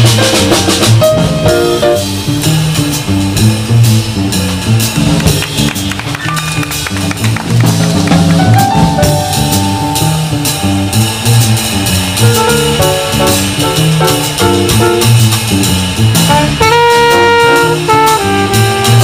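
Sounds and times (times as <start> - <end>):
drum kit with cymbals: 0.0 - 19.0
piano: 0.0 - 19.0
upright bass walking: 0.0 - 19.0
horn playing: 8.9 - 19.0.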